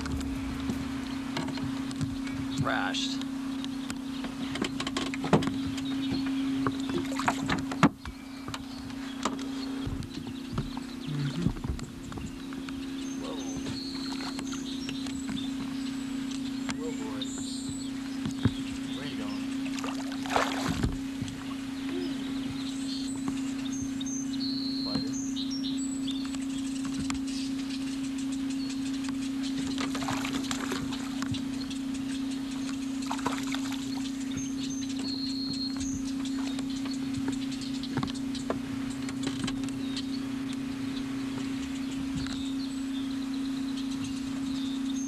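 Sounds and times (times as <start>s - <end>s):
knocks and clunks on boat deck: 0.0s - 15.8s, 16.6s - 23.4s, 24.8s - 25.2s, 33.1s - 39.9s
small birds chirping: 0.0s - 45.0s
steady low hum: 0.0s - 45.0s
fish splashing at water surface: 19.7s - 21.0s.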